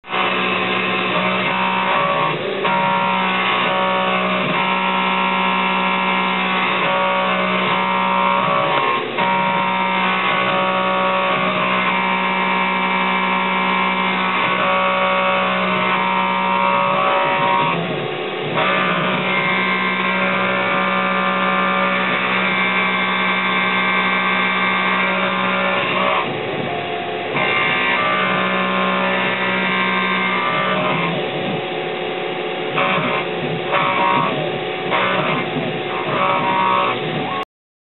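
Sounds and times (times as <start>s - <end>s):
milling machine whine: 0.0s - 37.5s.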